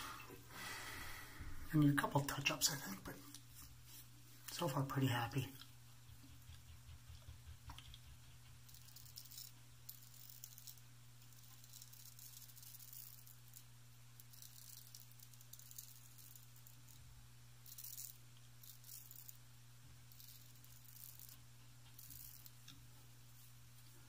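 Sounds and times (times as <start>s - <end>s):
steady low hum: 0.0s - 24.0s
razor scraping stubble: 5.6s - 17.0s.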